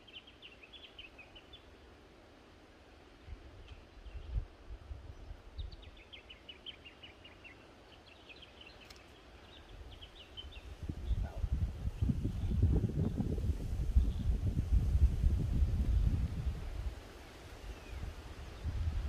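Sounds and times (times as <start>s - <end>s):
wind buffeting microphone: 9.7s - 19.0s.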